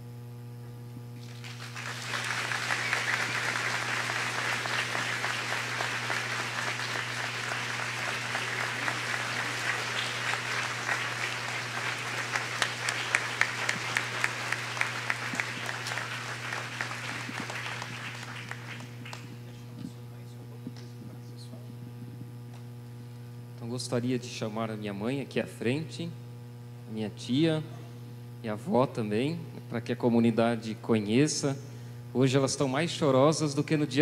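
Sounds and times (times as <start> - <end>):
low electrical hum: 0.0 - 34.0
sharp nearby hand claps: 1.2 - 19.5
congregation applauding: 1.2 - 19.8.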